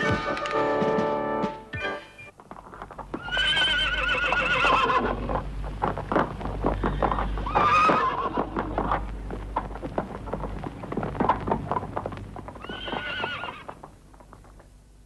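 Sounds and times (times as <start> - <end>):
galloping hoofbeats: 0.0 - 14.8
horse whinnying: 3.2 - 5.2, 6.8 - 8.8, 12.6 - 13.8.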